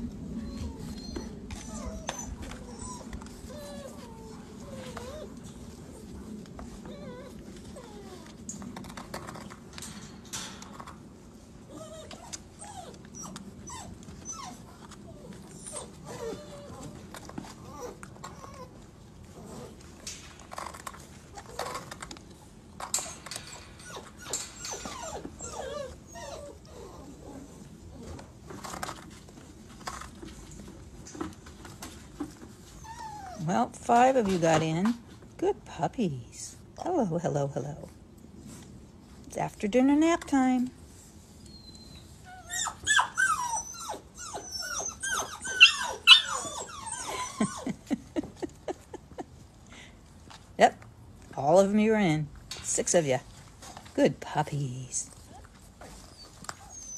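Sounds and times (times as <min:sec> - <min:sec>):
puppies whining and whimpering: 0:00.0 - 0:09.5, 0:11.4 - 0:30.3, 0:31.9 - 0:34.2, 0:41.3 - 0:49.9, 0:55.0 - 0:56.9.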